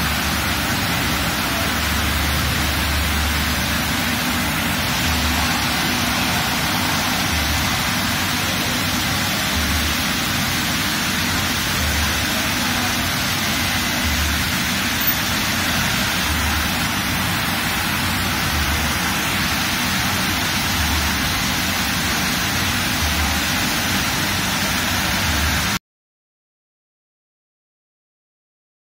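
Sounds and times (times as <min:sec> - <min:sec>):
car wash brushes and water spray: 0:00.0 - 0:25.8.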